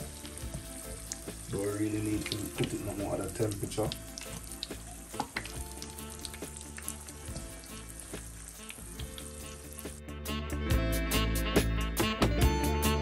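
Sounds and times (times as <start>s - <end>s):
chicken deep-frying in oil: 0.0s - 10.0s.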